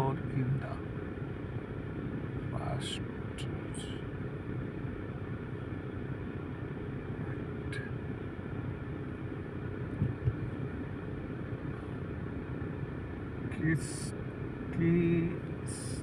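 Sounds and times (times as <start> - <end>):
cars in slow traffic: 0.0 - 16.0
brief thumps: 10.0 - 10.5.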